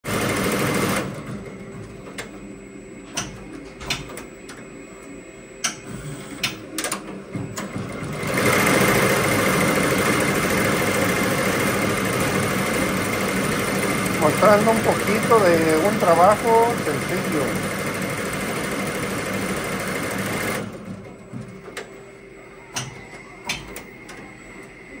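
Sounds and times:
embroidery machine stitching: 0.0s - 1.6s, 5.9s - 21.0s.

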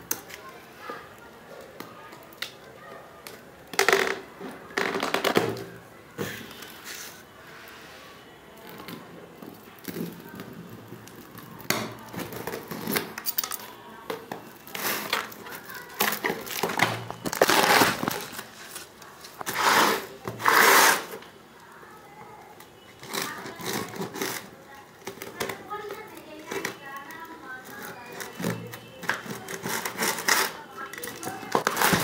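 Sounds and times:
plastic film crinkling: 9.4s - 32.0s.

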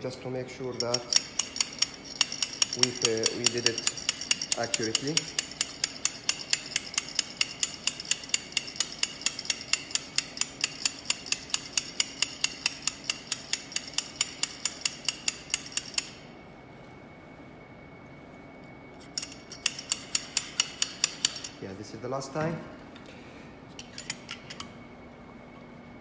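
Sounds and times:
stirring rod clinking on metal cup: 0.7s - 16.0s.

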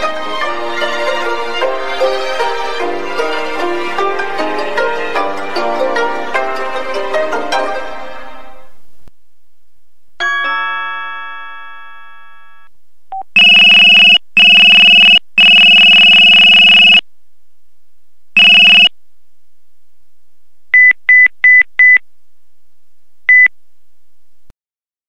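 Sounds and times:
buzzy electronic beeps: 13.4s - 17.0s, 18.4s - 18.9s
phone chime: 13.4s - 17.0s, 18.4s - 18.9s
quick high beeps: 13.4s - 17.0s, 18.4s - 18.9s.

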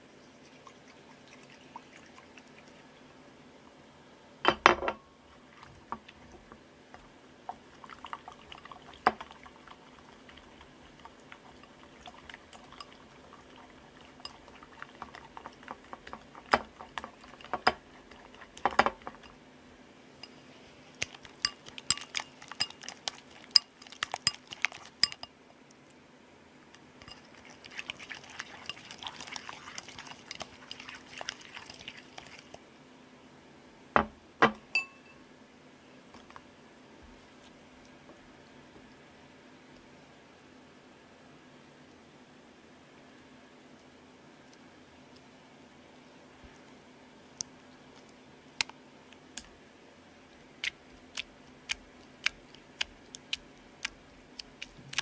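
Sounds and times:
stick stirring liquid in a bowl: 0.2s - 3.0s, 5.4s - 19.4s, 20.2s - 25.4s, 26.7s - 32.6s, 50.6s - 55.0s
bowl and utensils clinking: 21.3s - 25.3s, 27.0s - 31.8s, 34.4s - 35.2s.

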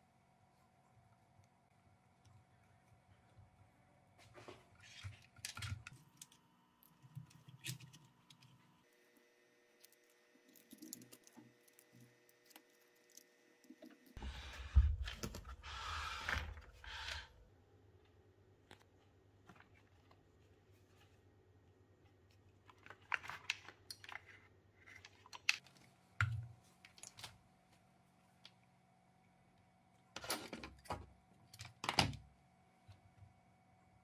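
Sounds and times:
small plastic parts clicking: 9.8s - 14.2s.

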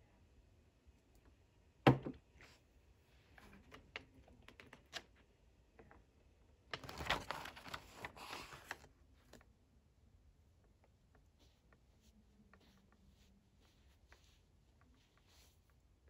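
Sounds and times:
book page turning: 6.7s - 9.5s.

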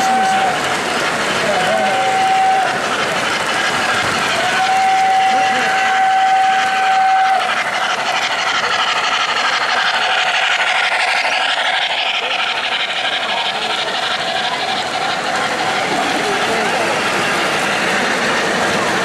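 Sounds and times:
model train rolling on track: 0.0s - 19.0s
steam chuff and hiss: 0.0s - 19.0s
train whistle: 1.8s - 2.8s, 4.4s - 7.5s.

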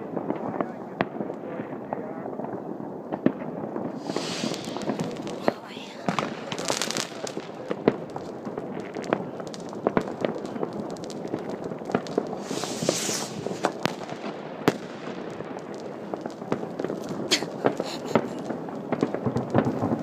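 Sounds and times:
fireworks popping and banging: 0.0s - 20.0s
steady crackle: 0.0s - 20.0s
sharp crack: 3.2s - 20.0s
hissing rush: 4.0s - 8.5s, 12.2s - 14.2s.

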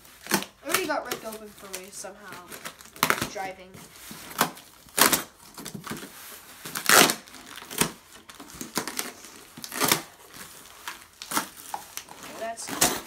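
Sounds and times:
cardboard box tearing and crumpling: 0.0s - 13.0s.

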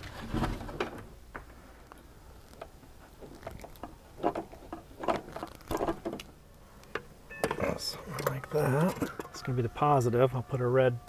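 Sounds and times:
cable and tools handled: 1.8s - 9.6s.

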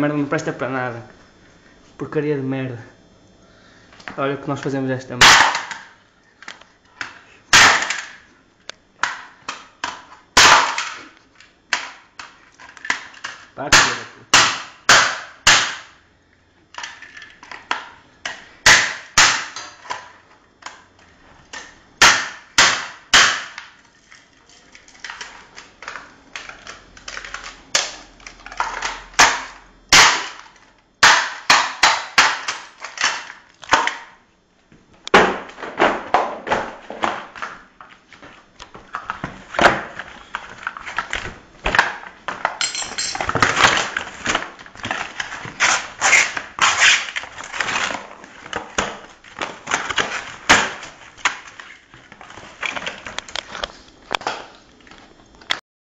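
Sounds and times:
hammer smashing plastic casing: 5.2s - 5.9s, 7.5s - 8.2s, 9.0s - 11.1s, 12.8s - 15.9s, 27.2s - 34.0s, 35.1s - 37.6s, 38.9s - 53.2s.

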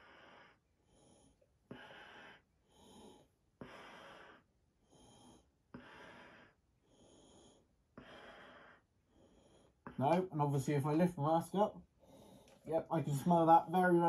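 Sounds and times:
breathing through gas mask: 0.0s - 10.0s
person sniffing: 0.0s - 10.0s.

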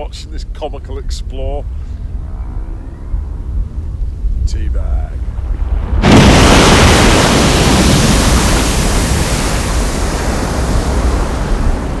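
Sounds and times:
explosion rumble: 5.1s - 12.0s.

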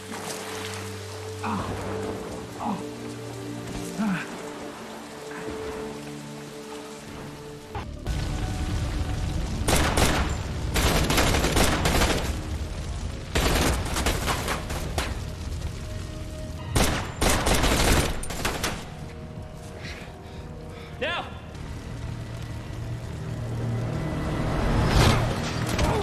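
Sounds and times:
rapid gunfire bursts: 16.8s - 18.9s
steady low rumble: 21.4s - 25.3s.

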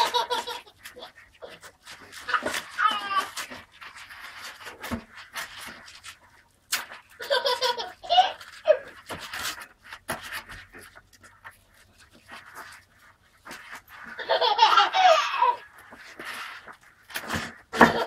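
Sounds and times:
toddlers laughing and squealing: 0.0s - 3.4s, 7.2s - 9.0s, 14.1s - 15.8s
styrofoam and cardboard handled: 0.0s - 18.0s.

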